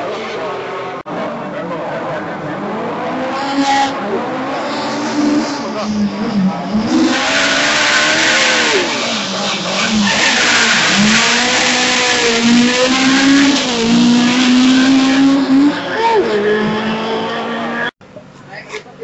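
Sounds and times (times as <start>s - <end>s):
rally car engine revving: 0.0s - 18.0s
tyre squeal: 7.0s - 17.9s.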